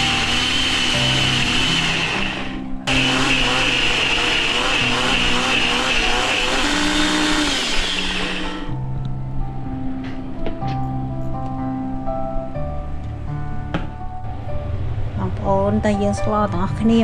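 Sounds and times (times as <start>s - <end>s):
blender motor running: 0.0s - 8.8s.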